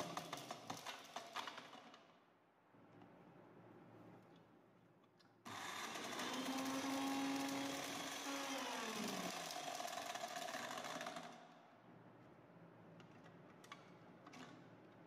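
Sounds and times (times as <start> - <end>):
ball pieces churning in blender: 0.0 - 2.0, 5.5 - 11.6
blender motor whirring: 5.5 - 11.3.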